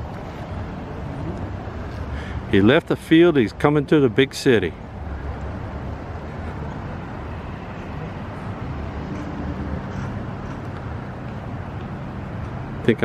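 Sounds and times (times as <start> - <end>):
higher engine hum: 0.0 - 13.0
traffic engine rumble: 0.0 - 13.0.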